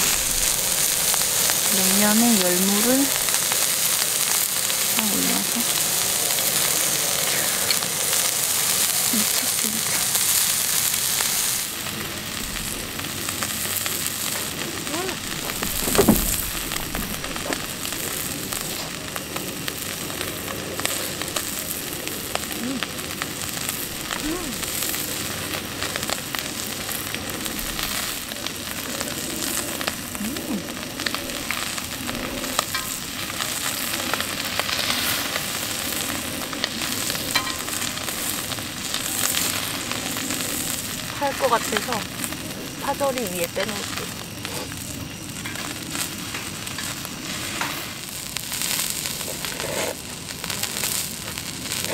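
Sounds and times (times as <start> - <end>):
meat sizzling on a griddle: 0.0 - 51.9
loud knock: 15.4 - 17.6.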